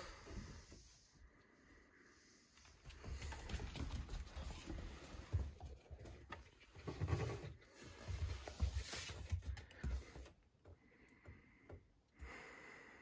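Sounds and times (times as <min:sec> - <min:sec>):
animals scuffling on tile floor: 0:02.6 - 0:10.4.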